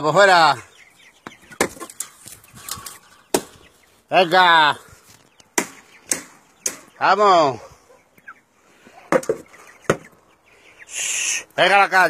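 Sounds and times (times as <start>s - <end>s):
person calling: 10.9s - 11.6s.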